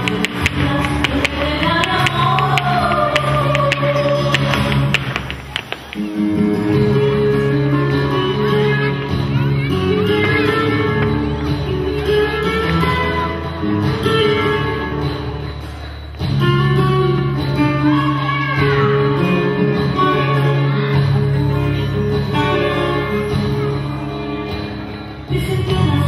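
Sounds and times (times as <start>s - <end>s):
person singing: 0.0s - 5.3s, 25.2s - 26.0s
acoustic guitar: 0.0s - 26.0s.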